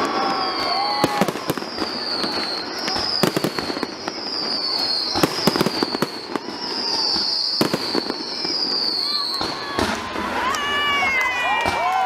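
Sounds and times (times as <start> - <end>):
descending firework whistle: 0.0 - 12.0
fireworks bangs and crackles: 0.0 - 12.0.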